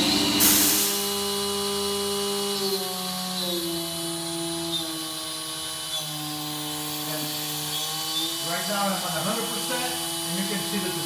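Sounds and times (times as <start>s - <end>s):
router spindle motor whining: 0.0s - 11.0s
burst of hiss: 0.4s - 1.1s.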